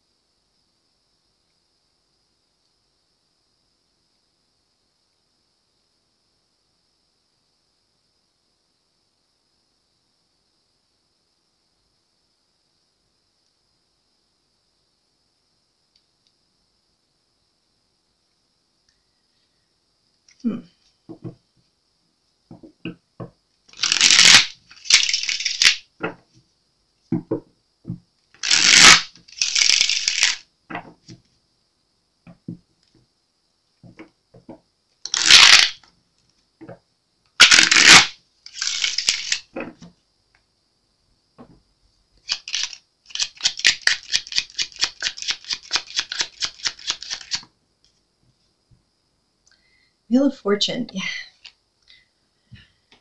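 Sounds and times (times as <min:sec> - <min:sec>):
cards being shuffled: 0:23.7 - 0:26.2, 0:28.4 - 0:31.2, 0:35.1 - 0:35.8, 0:37.4 - 0:39.8, 0:42.2 - 0:47.4.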